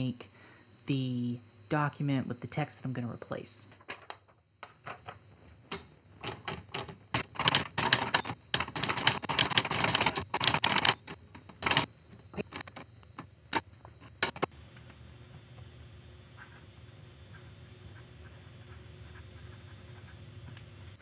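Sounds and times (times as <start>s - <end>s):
typewriter keys clicking: 6.2s - 11.9s.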